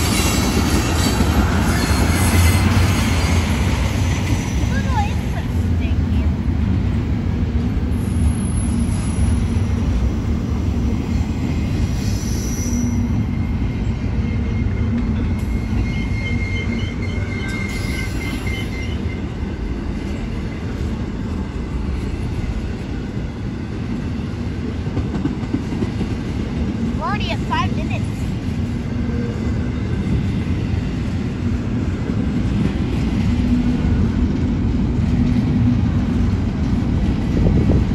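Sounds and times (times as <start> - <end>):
freight train wheels rumbling on rail: 0.0 - 37.9
high wheel squeal: 12.0 - 19.3.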